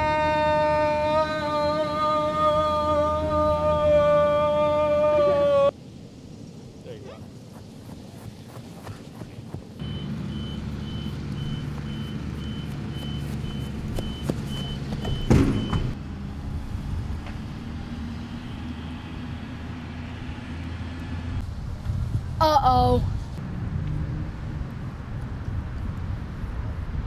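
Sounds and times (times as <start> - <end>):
backup alarm beeping: 9.8 - 16.0
vehicle engine running: 9.8 - 21.5.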